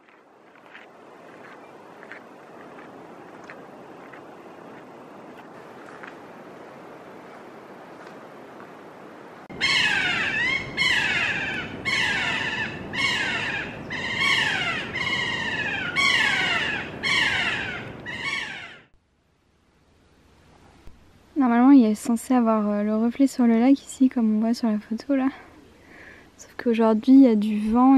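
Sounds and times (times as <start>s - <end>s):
parrot calling: 9.6s - 18.9s
faint background hiss: 19.0s - 27.9s.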